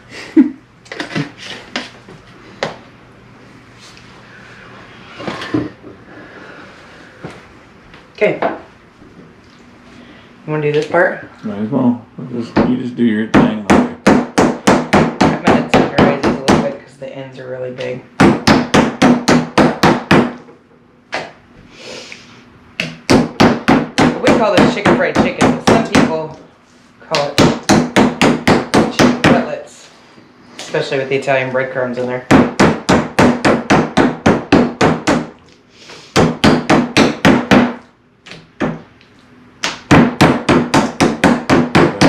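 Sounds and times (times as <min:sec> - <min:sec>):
tool pounding meat on wooden board: 0:12.6 - 0:16.7, 0:18.2 - 0:20.4, 0:22.8 - 0:26.2, 0:27.1 - 0:29.5, 0:32.3 - 0:35.4, 0:36.2 - 0:37.8, 0:39.6 - 0:42.0.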